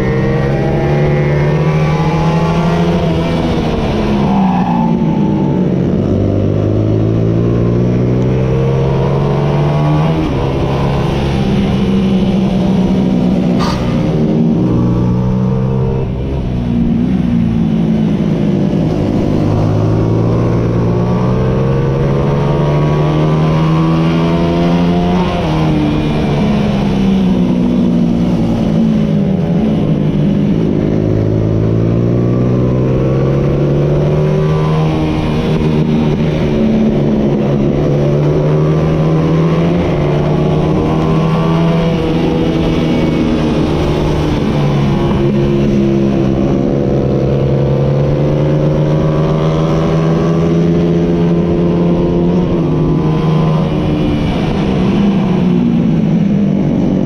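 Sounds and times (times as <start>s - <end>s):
racing motorcycle engine at full throttle: 0.0s - 57.0s.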